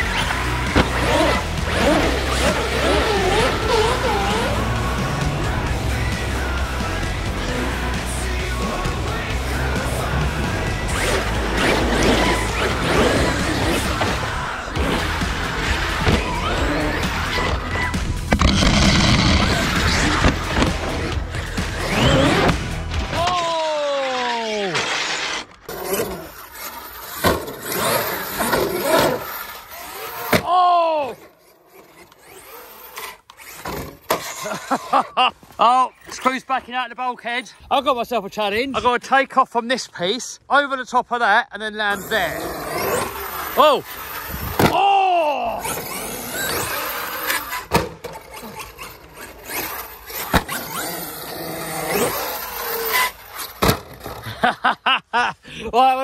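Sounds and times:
electric motor whine: 0:00.0 - 0:22.6
toy truck tyres rolling and scraping: 0:00.0 - 0:40.4, 0:41.8 - 0:54.8.

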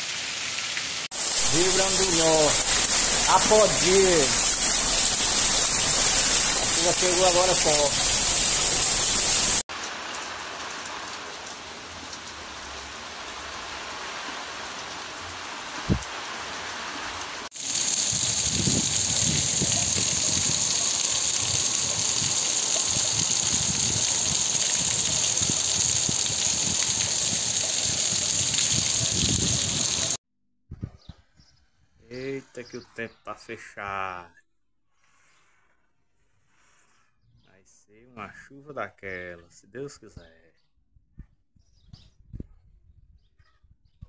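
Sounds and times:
heavy rain falling: 0:00.0 - 0:30.2.

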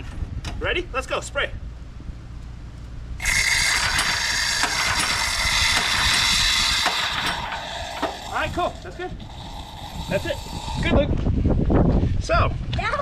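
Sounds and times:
pull-start cord ratcheting clicks: 0:03.2 - 0:10.9.

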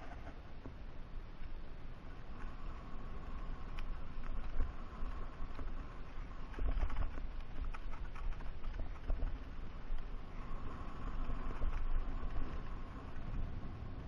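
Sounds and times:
wind rumble on microphone: 0:00.0 - 0:14.0
bike rattling with clicks and knocks: 0:03.7 - 0:10.0, 0:11.1 - 0:13.4.

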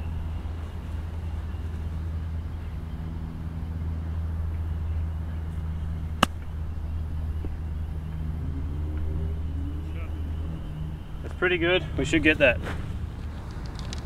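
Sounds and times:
golf club striking ball: 0:06.2 - 0:06.5.

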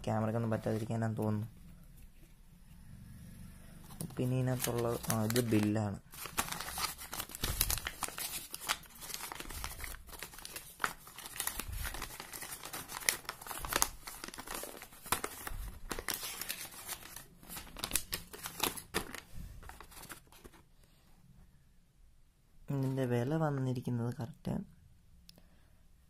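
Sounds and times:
paper rustling and crinkling: 0:03.9 - 0:20.7.

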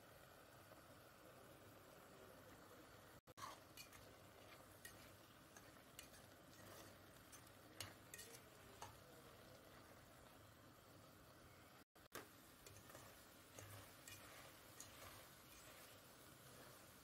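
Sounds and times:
low steady hiss: 0:00.0 - 0:17.0
metal spoon scraping metal pot: 0:03.4 - 0:09.1, 0:12.6 - 0:16.8.

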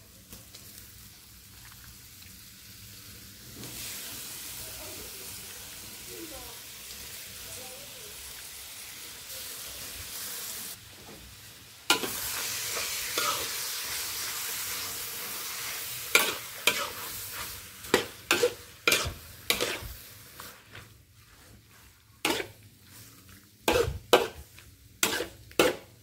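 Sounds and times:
squid sizzling in a wok: 0:00.0 - 0:26.0
metal spatula scraping a wok: 0:11.9 - 0:26.0.

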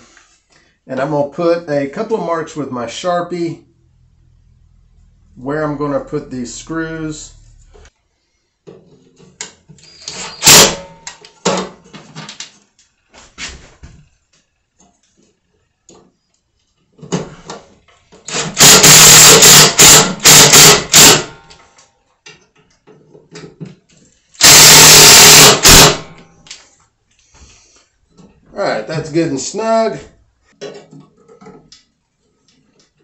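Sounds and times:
cordless drill bursts: 0:10.0 - 0:10.8, 0:18.3 - 0:21.3, 0:24.4 - 0:26.2.

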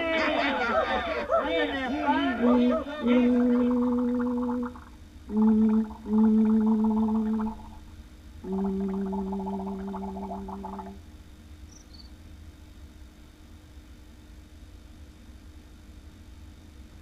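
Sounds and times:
faint hum and hiss: 0:00.0 - 0:17.0
buzzy warbling notes: 0:02.4 - 0:07.8, 0:08.4 - 0:11.0.

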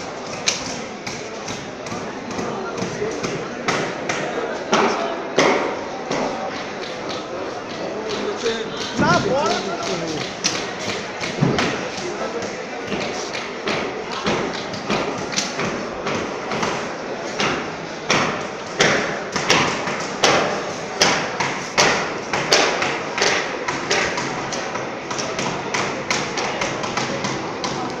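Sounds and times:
sharp knocks and taps: 0:00.4 - 0:16.8.

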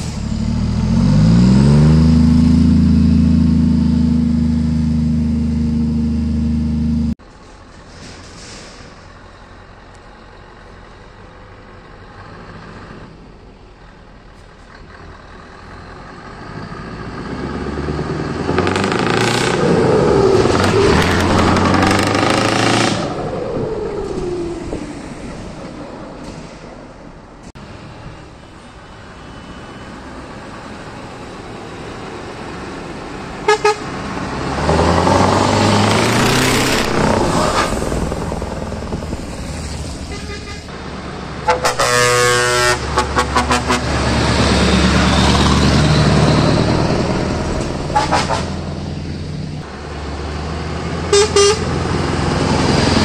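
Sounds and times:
trucks driving past: 0:00.0 - 0:53.0
air horn toots: 0:33.4 - 0:33.9, 0:40.0 - 0:40.7, 0:41.4 - 0:44.1, 0:47.9 - 0:48.6, 0:51.1 - 0:51.7
music horn playing notes: 0:33.5 - 0:33.8, 0:41.5 - 0:43.9, 0:51.1 - 0:51.7.

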